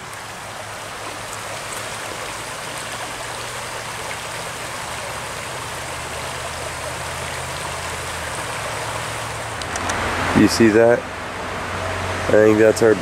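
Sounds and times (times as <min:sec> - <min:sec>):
creek water rippling over cobbles: 0:00.0 - 0:13.0.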